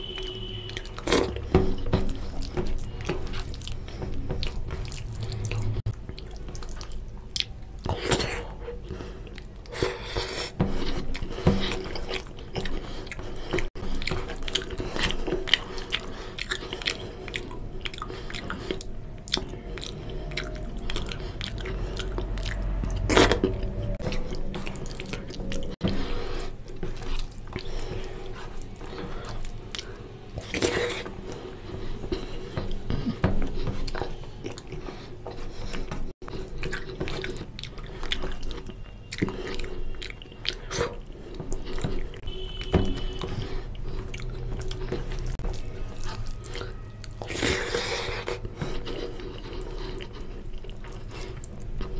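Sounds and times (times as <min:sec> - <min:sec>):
wet chewing and lip-smacking: 0:00.0 - 0:51.9.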